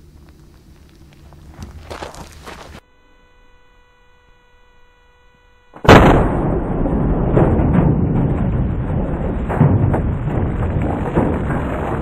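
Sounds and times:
footsteps on rocky ground: 0.0 - 2.8
faint electronic hum: 0.0 - 7.3.

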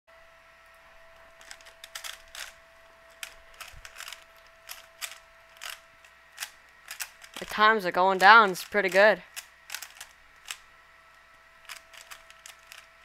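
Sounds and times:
plastic cube clacks: 1.4 - 5.8, 6.4 - 7.6, 8.2 - 10.6, 11.6 - 12.9.

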